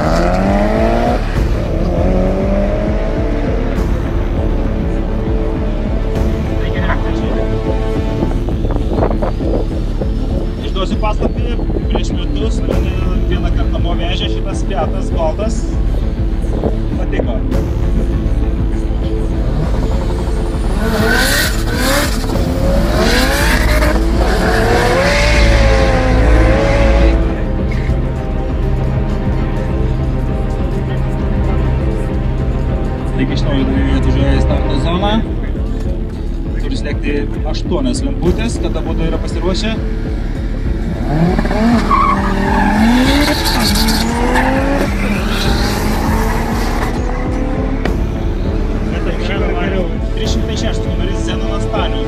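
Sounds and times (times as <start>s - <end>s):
drag racing cars accelerating: 0.0s - 3.7s, 19.5s - 27.8s, 40.2s - 47.9s
race car engines accelerating: 0.0s - 36.8s, 38.1s - 52.0s.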